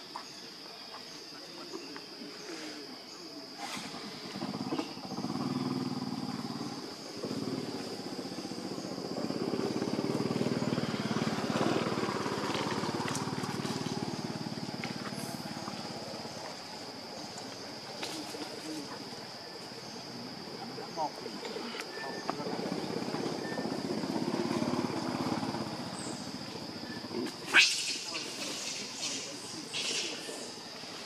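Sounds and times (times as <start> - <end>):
vehicle engine passing: 5.2 - 16.3, 22.5 - 26.6.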